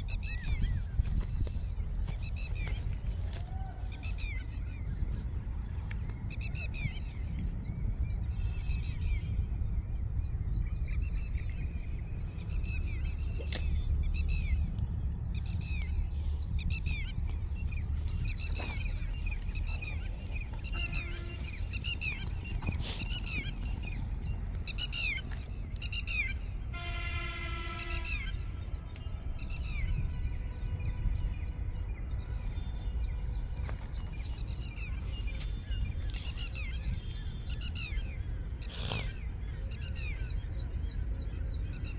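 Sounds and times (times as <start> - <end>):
birds chirping: 0.0 - 41.9
horn: 26.8 - 28.2.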